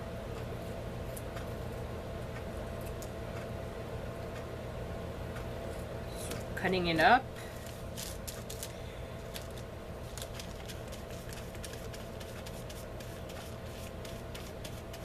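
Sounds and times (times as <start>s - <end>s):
low background hum: 0.0s - 15.0s
paintbrush dabbing on paper: 10.8s - 15.0s.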